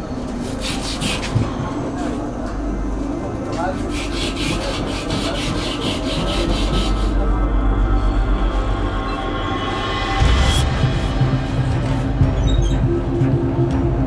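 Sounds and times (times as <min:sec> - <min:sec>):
steady low hum: 0:00.0 - 0:14.0
rhythmic rasping strokes: 0:03.4 - 0:14.0.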